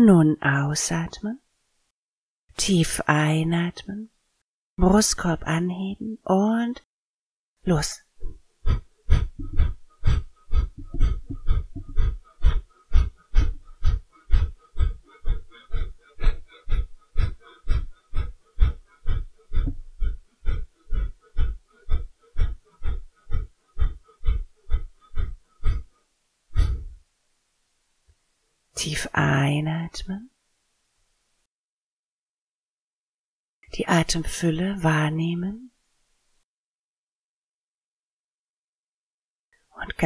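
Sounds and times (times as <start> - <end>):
forceful nasal exhalations: 8.2 - 27.0.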